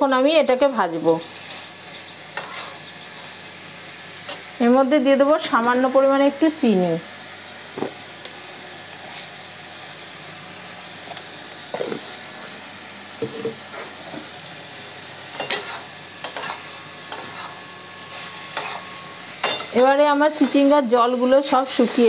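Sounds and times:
food sizzling in a pan: 0.0 - 22.0
metal spatula scraping pan: 2.3 - 3.3, 15.4 - 20.8.

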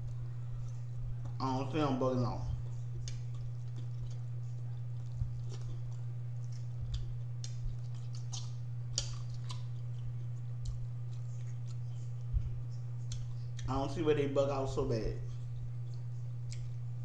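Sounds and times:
steady low hum: 0.0 - 17.0
person chewing: 2.7 - 13.7, 15.2 - 17.0.

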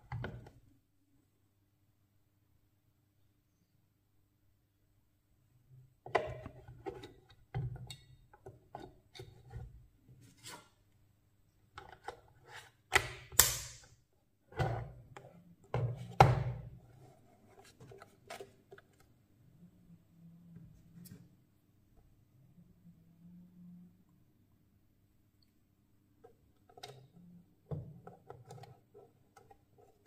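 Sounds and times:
faint steady hum: 16.8 - 28.0.

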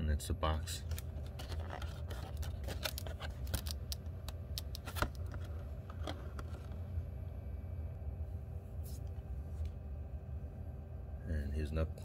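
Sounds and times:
plastic packaging crinkling: 0.8 - 4.0.

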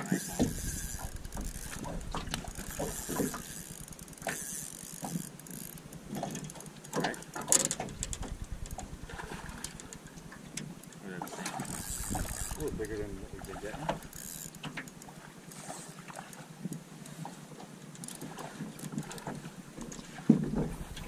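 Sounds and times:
fishing reel clicking and ratcheting: 0.0 - 10.0, 10.8 - 15.7.

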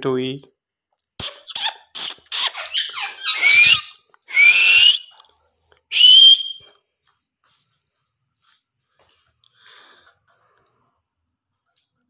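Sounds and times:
parakeet chattering: 1.2 - 3.9
parakeet shrill rising calls: 1.2 - 5.0.

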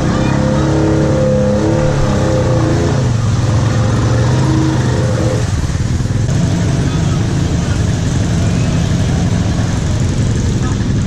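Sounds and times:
quad engine running: 0.0 - 11.0.

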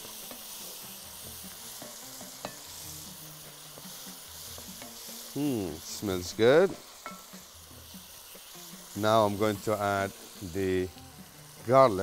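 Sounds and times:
onions sizzling in a pot: 0.0 - 12.0
spoon stirring and scraping pot: 1.6 - 2.9
spoon knocking on pot: 1.8 - 2.7.

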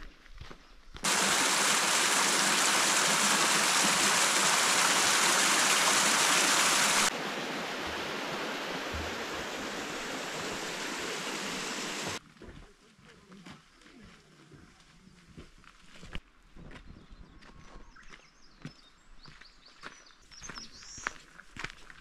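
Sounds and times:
rushing water: 1.0 - 12.2.

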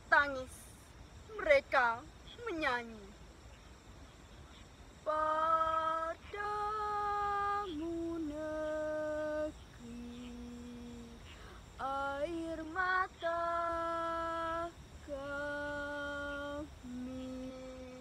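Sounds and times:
woman singing: 5.1 - 18.0.

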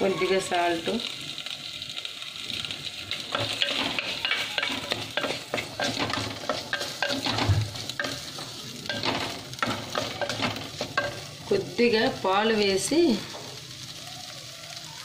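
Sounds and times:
vegetables sizzling in a pot: 0.0 - 15.0
wooden spoon scraping a pot: 2.6 - 11.3.

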